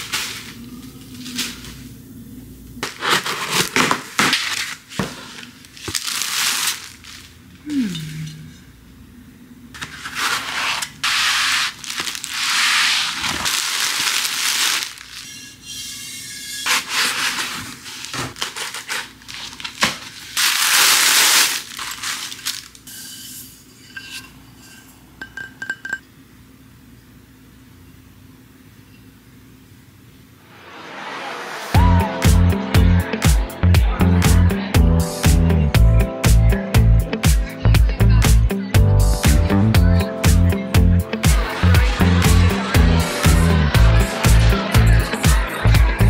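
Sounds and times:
plastic and cardboard packaging rustling: 0.0 - 1.9, 2.8 - 7.6, 9.8 - 23.2
ceramic and glass clinking: 23.8 - 26.1.

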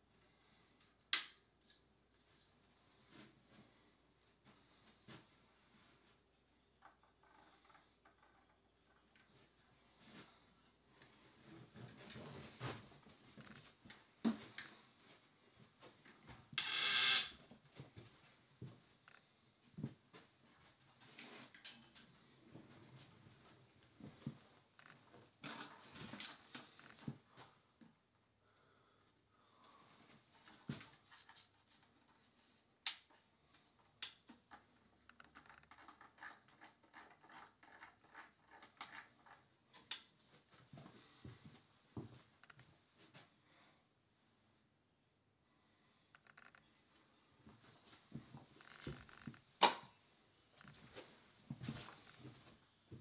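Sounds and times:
light being handled clicks and knocks: 30.4 - 40.2.

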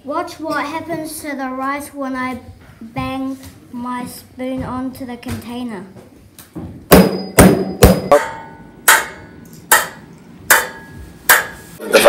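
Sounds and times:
metal spoon banging on tray: 6.9 - 11.6.

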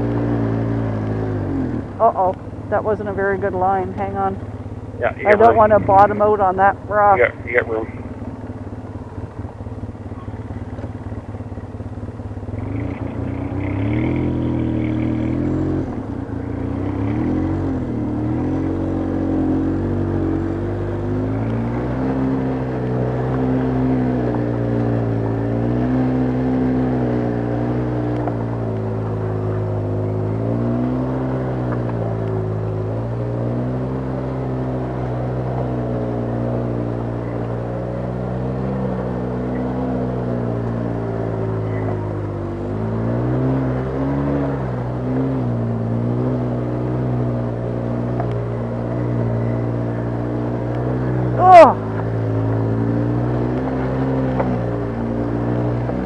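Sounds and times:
atv engine revving: 0.0 - 56.0
clatter: 8.2 - 17.2.

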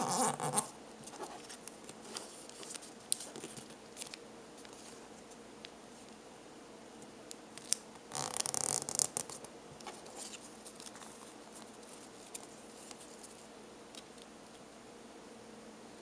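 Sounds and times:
paper being folded and creased: 0.0 - 5.0, 7.6 - 13.4
paper rustling and rubbing: 0.0 - 5.1, 8.1 - 13.5.

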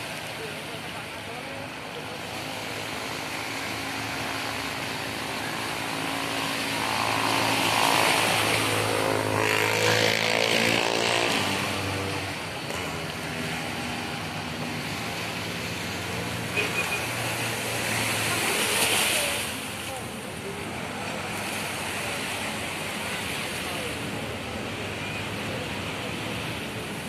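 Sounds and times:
small waves washing on shore: 0.0 - 27.0
motor vehicle engine passing by: 6.2 - 13.8.

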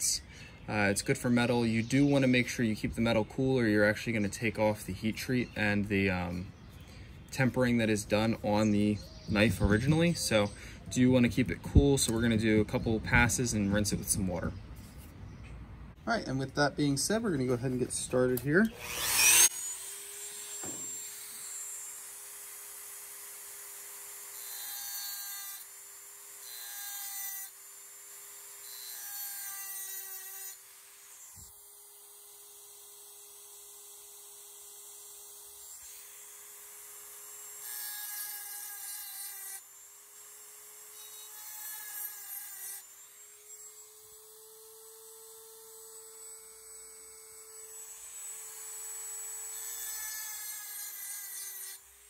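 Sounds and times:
rotary tool whining: 18.0 - 52.0
harsh grinding on steel blade: 18.6 - 22.8, 37.0 - 44.2.

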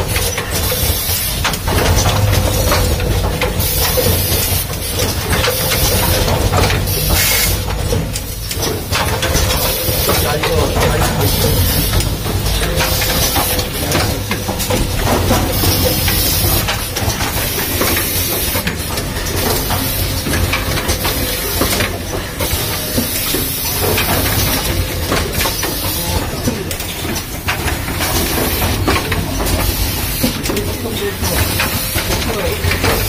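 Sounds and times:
mechanical clicks clattering: 0.0 - 33.0
low machine rumble: 1.6 - 18.0.

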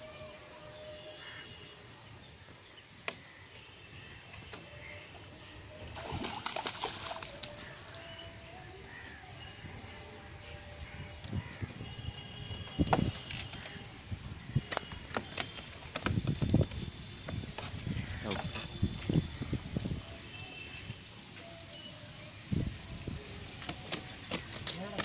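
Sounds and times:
fish thrashing and splashing: 5.9 - 8.2, 23.6 - 25.0.

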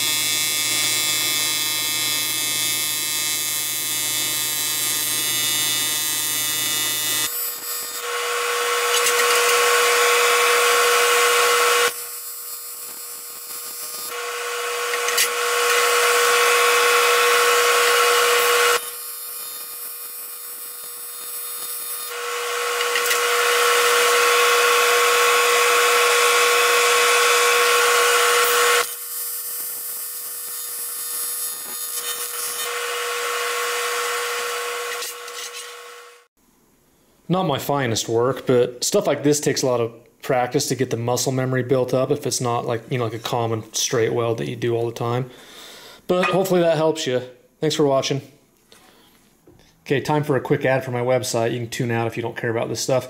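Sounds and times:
welding arc buzzing: 0.0 - 36.3.

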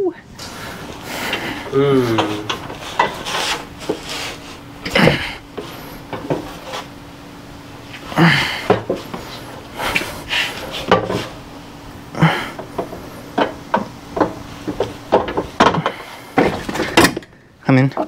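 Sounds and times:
man panting and grunting: 0.9 - 2.6, 4.8 - 5.5, 8.1 - 8.9, 12.1 - 12.7.

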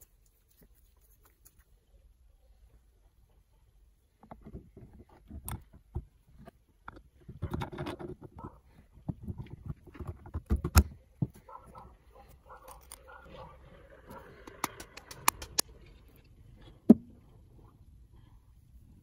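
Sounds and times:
metal parts clicking and knocking: 4.4 - 8.4, 12.6 - 13.0.

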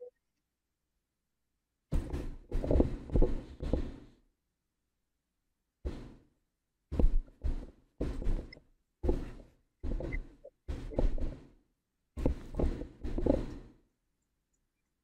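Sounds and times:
dull thumps: 1.9 - 4.2, 5.8 - 13.8.

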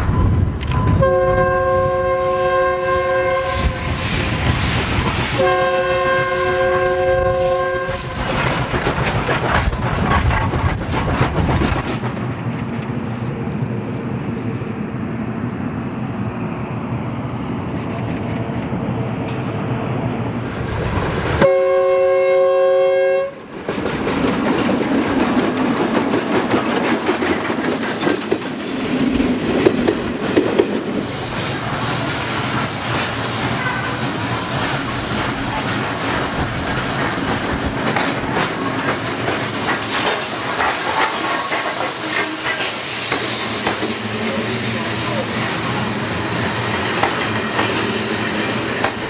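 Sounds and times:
moving train noise: 0.0 - 49.0
steam locomotive whistle: 0.9 - 4.0, 5.1 - 8.2, 21.4 - 23.4, 33.6 - 34.4, 41.9 - 43.6
train wheels clacking over rail joints: 3.4 - 12.9, 23.4 - 49.0.

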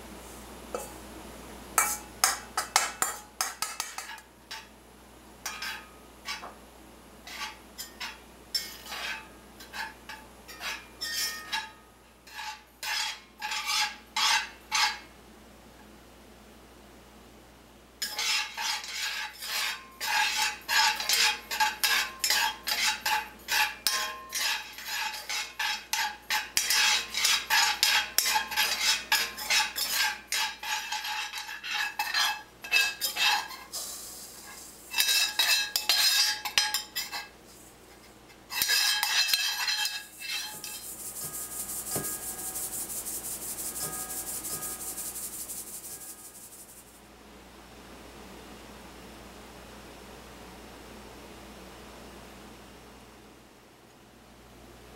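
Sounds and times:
metal spoon scraping a pan: 1.8 - 4.7, 5.4 - 6.5, 7.2 - 15.1, 18.0 - 47.0
grounds hissing through a strainer: 18.0 - 47.0.

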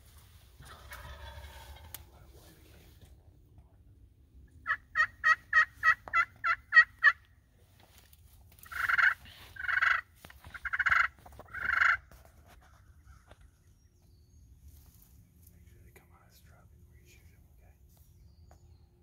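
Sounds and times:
turkey call yelps: 0.6 - 1.9, 4.6 - 7.2, 8.6 - 12.0.

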